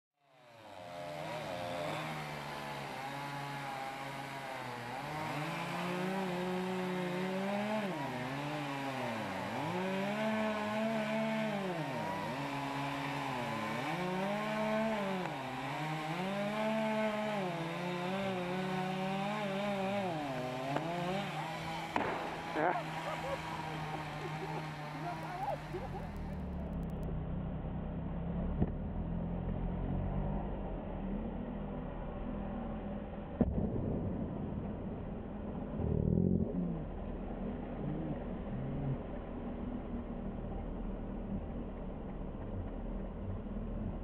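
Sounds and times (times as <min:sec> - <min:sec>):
chainsaw cutting tree trunk: 0:00.2 - 0:44.0.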